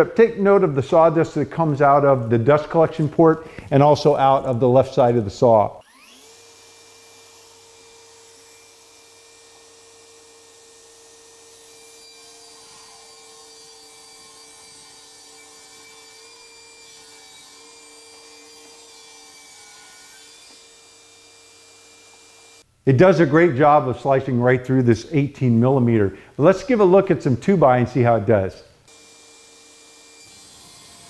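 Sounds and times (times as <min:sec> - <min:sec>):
table saw whine: 0:05.8 - 0:22.6, 0:28.9 - 0:31.0.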